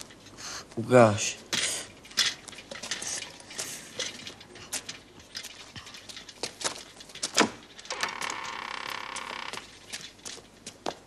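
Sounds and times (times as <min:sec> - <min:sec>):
wooden door creaking: 0:07.3 - 0:09.8.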